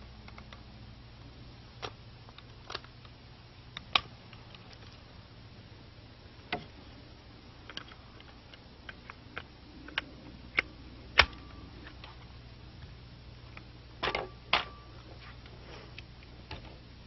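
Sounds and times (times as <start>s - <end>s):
rifle parts clicking and knocking: 7.6s - 12.2s.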